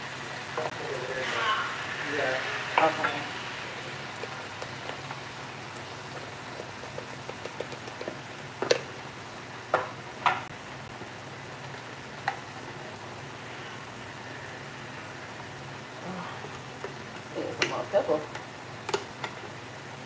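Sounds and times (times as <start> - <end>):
food sizzling in a frying pan: 0.0 - 20.0
seasoning shakers clicking: 5.8 - 8.9.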